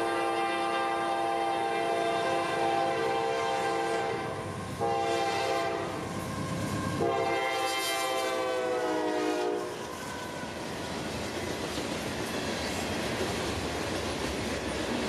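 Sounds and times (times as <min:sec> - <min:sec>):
locomotive air horn blasts: 0:00.0 - 0:06.0, 0:07.0 - 0:09.8.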